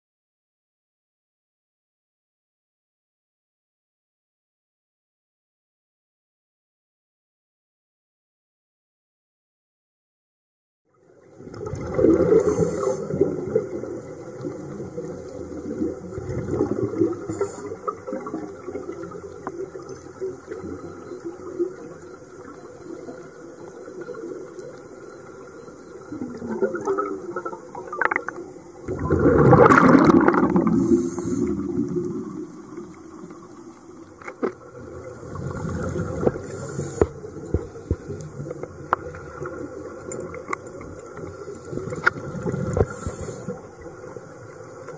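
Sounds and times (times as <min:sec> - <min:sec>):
air bubbling underwater: 0:26.2 - 0:32.4.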